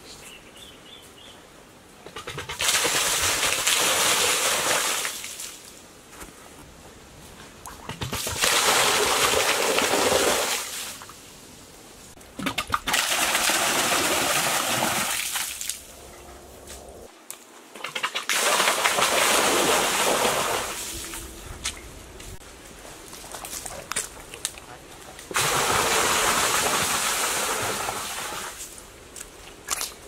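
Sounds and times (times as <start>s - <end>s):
water splashing into pool: 2.3s - 5.6s, 7.7s - 11.1s, 12.4s - 15.9s, 17.8s - 21.3s, 25.3s - 28.6s.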